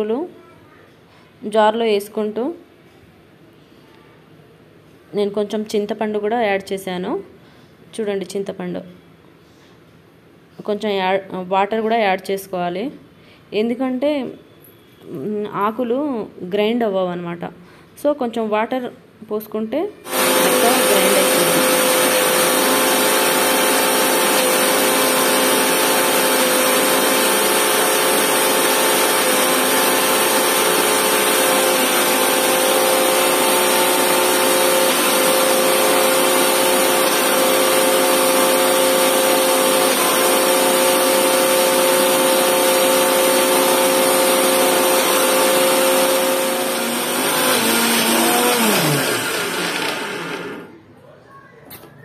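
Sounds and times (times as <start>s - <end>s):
mixer grinder motor whine: 20.1s - 50.8s.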